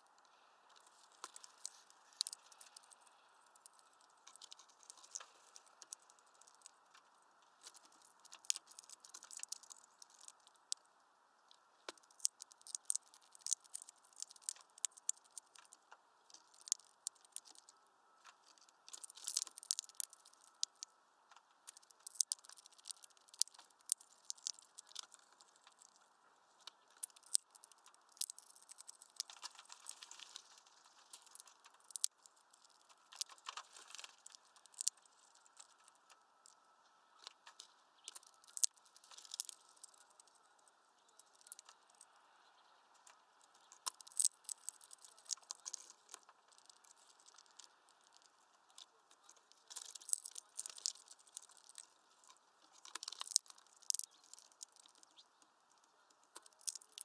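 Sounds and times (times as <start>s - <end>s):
bird cracking seeds: 0.3s - 10.9s, 11.5s - 42.2s, 42.9s - 57.0s.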